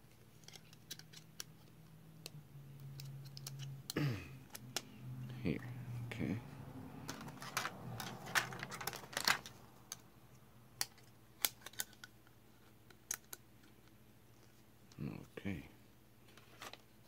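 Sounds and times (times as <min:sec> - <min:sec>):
plastic parts clicking and clattering: 0:00.1 - 0:01.8, 0:02.8 - 0:04.9, 0:07.0 - 0:10.0, 0:10.8 - 0:14.0.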